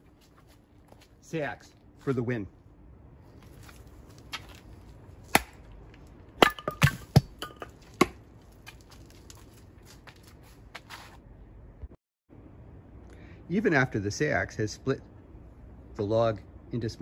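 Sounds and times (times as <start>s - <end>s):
blade chopping firewood: 4.2s - 9.4s.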